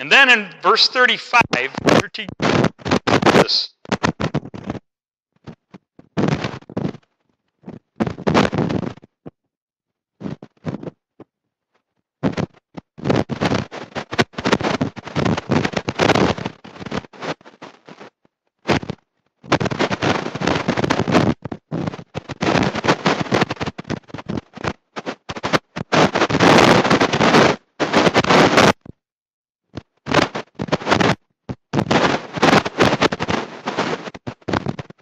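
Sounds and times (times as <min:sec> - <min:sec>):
man preaching: 0:00.0 - 0:02.3, 0:03.3 - 0:03.7
distorted crackling audio: 0:00.0 - 0:09.4, 0:10.2 - 0:29.0, 0:29.7 - 0:35.0.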